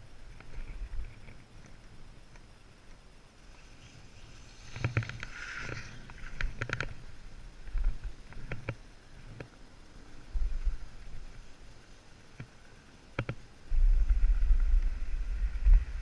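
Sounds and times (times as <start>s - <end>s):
wind rumbling on microphone: 0.0s - 2.7s, 3.4s - 16.0s
skis scraping over snow: 3.4s - 8.3s, 13.7s - 16.0s.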